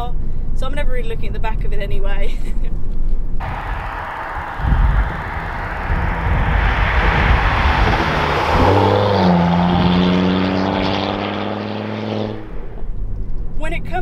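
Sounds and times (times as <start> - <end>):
road noise: 2.9 - 14.0
car driving by: 3.4 - 13.3
car exhaust note: 3.4 - 13.6.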